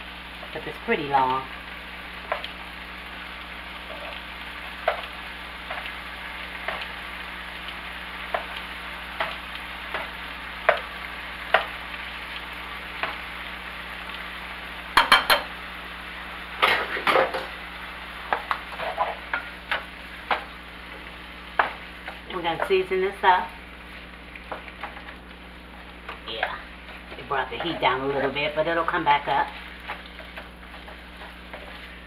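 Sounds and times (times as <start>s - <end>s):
meat sizzling in a frying pan: 0.0s - 32.0s
wooden spatula stirring meat: 18.3s - 32.0s.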